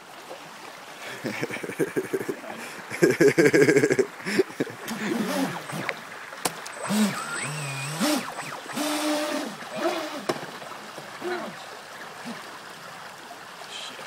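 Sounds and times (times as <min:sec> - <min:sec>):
creek water rushing: 0:00.0 - 0:14.0.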